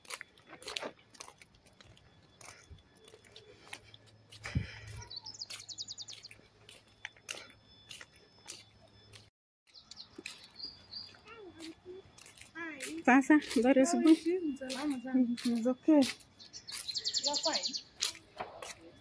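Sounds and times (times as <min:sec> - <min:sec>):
birds chirping: 0:00.0 - 0:19.0
footsteps on pavement: 0:00.0 - 0:19.0
high bird trill: 0:04.4 - 0:09.1, 0:09.7 - 0:18.3.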